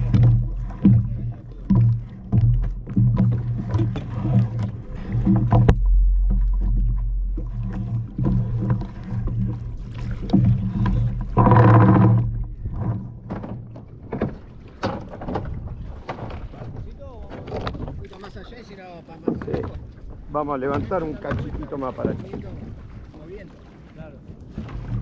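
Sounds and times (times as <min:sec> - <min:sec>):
low hum: 0:00.0 - 0:13.8
rope rubbing against hull: 0:00.0 - 0:13.8.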